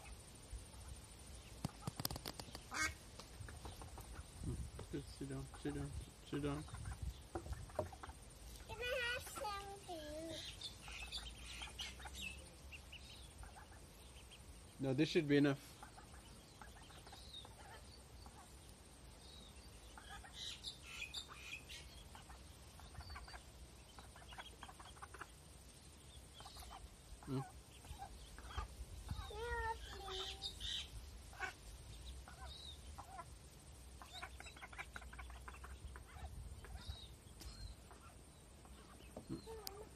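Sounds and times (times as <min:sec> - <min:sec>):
ducklings peeping: 0:00.0 - 0:39.9.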